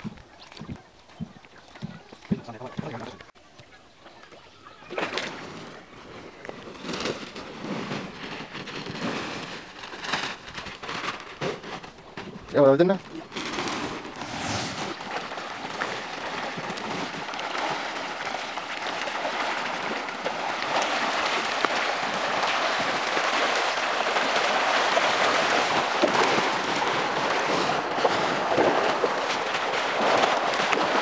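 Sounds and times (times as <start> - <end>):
fish splashing at water surface: 13.1 - 31.0.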